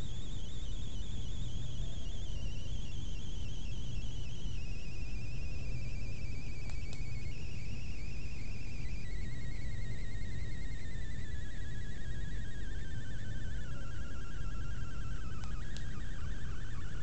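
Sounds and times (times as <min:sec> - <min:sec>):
steady low hum: 0:00.0 - 0:17.0
warbling electronic whine: 0:00.0 - 0:17.0.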